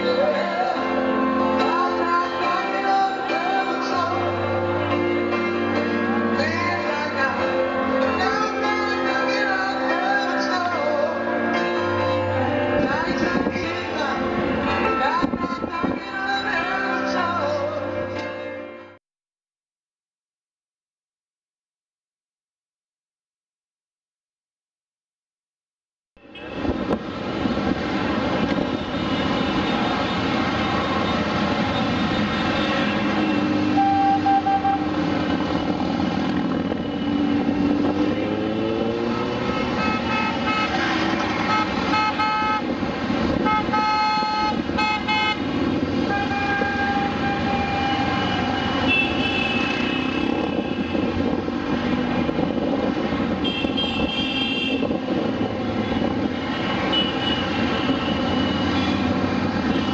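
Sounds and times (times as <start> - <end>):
motorcycle engines droning: 29.5 - 43.7
horns tooting: 30.9 - 35.8, 36.7 - 42.8, 43.4 - 51.2, 55.9 - 59.9.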